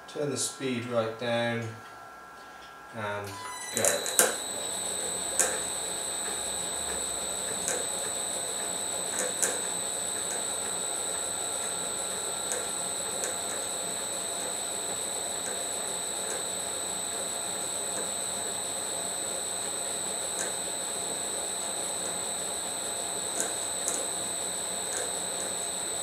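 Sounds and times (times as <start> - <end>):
lathe whine and hum: 0.0 - 26.0
sharp clicks: 3.8 - 11.8.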